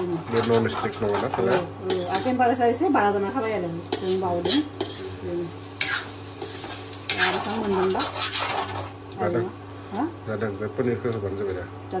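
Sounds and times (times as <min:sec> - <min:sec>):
frying sizzle: 0:00.0 - 0:12.0
spoon scraping a pan: 0:00.3 - 0:02.4, 0:03.9 - 0:05.2, 0:05.8 - 0:09.0.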